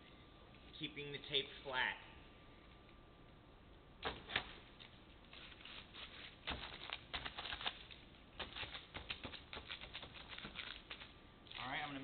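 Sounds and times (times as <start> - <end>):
adhesive tape peeling: 4.0 - 12.0
quick crackling: 4.0 - 12.0.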